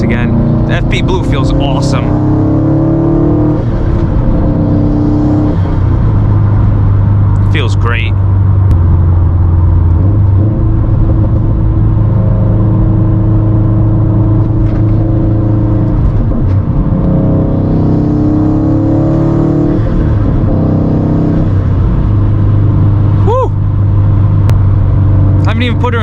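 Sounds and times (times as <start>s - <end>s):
car engine under acceleration: 0.0s - 26.0s
low road drone: 0.0s - 26.0s.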